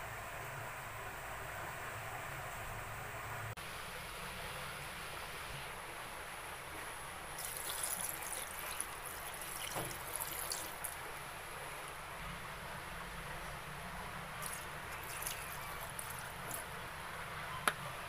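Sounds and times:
soda trickling and fizzing: 7.3s - 12.0s, 14.4s - 16.7s.

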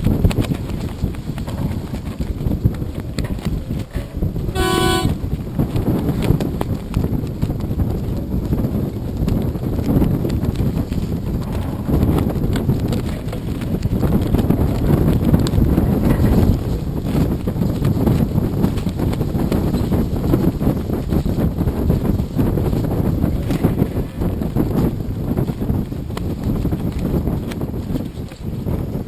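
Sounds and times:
wind on microphone: 0.0s - 29.0s
horn blast: 4.6s - 5.2s.

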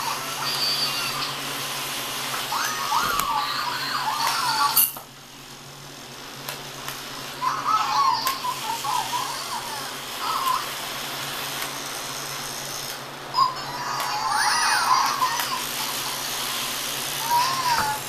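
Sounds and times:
toy hamsters electronic chirps: 0.3s - 1.4s.

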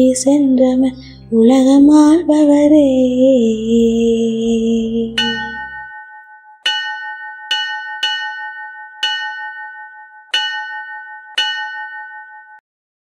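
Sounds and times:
bell ringing: 5.1s - 12.6s.

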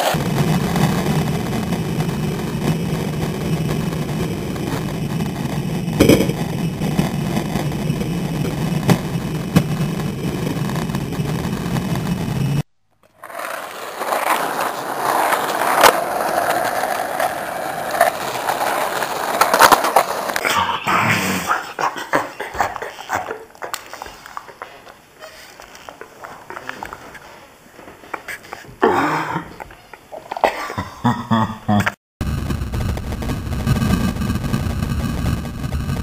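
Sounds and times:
skateboard wheels rolling on concrete: 0.0s - 31.4s, 32.2s - 36.0s
skateboard clacks: 6.0s - 9.7s, 13.0s - 20.4s, 21.7s - 28.8s.

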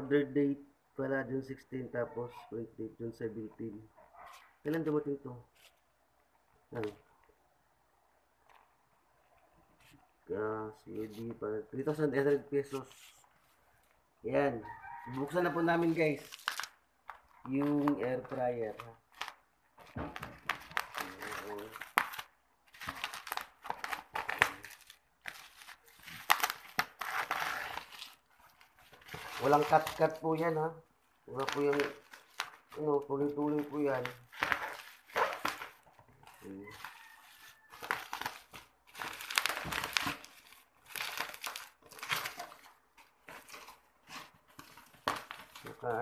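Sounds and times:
bubble wrap crinkling: 10.9s - 46.0s.

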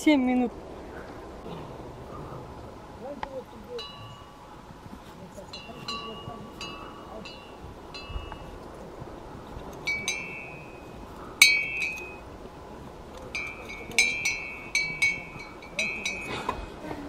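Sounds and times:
metal horse bells clinking: 3.4s - 16.9s.

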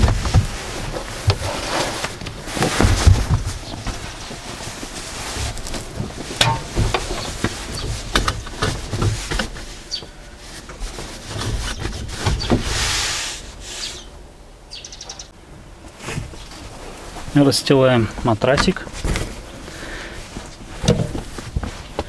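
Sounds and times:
light knocks and thuds: 0.0s - 1.5s, 2.2s - 12.7s, 20.5s - 22.0s
fabric rubbing: 0.0s - 13.8s.

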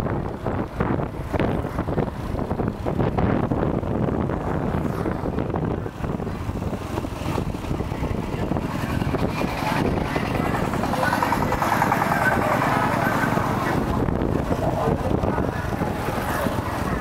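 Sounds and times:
vehicle and road noise: 0.0s - 17.0s
wind buffeting microphone: 0.0s - 17.0s.

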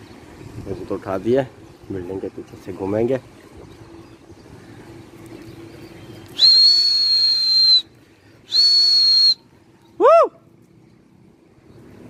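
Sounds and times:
loud high whistles: 6.3s - 10.3s.

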